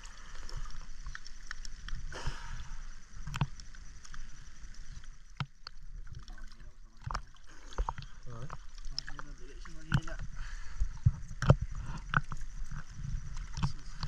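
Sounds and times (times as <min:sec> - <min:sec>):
water sloshing and splashing: 0:00.0 - 0:14.0
knocks and clicks against hull: 0:03.2 - 0:03.6, 0:05.0 - 0:14.0.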